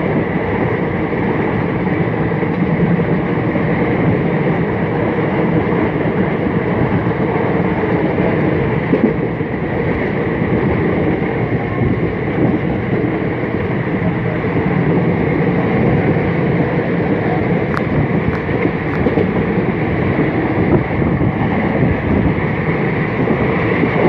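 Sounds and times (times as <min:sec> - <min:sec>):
rushing air: 0:00.0 - 0:24.0
train wheels rumbling on track: 0:00.0 - 0:24.0.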